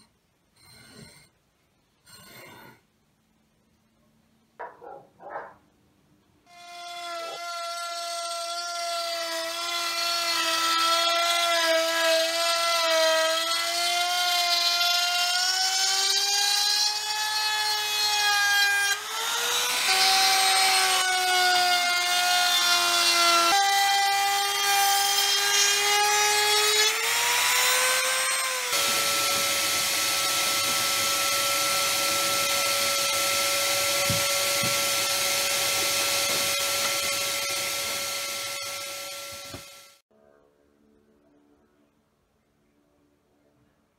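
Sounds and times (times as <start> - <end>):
trim router cutting wood: 6.5 - 40.0
vacuum humming and hissing: 28.7 - 40.0.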